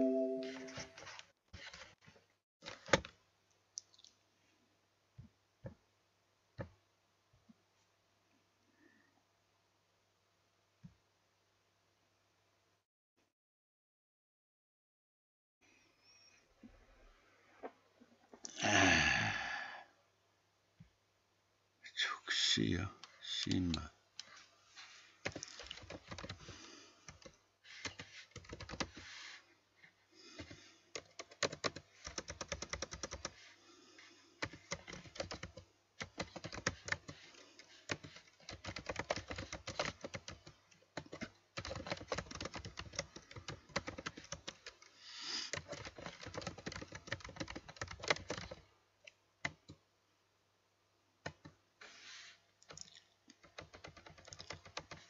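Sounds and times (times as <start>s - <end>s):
typing on computer keyboard: 25.2s - 29.3s, 30.4s - 33.5s, 34.4s - 48.6s, 51.2s - 51.5s, 52.7s - 55.0s.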